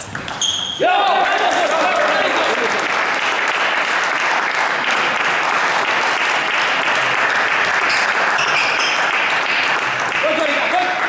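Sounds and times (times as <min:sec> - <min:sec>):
spectators clapping: 0:01.2 - 0:11.0.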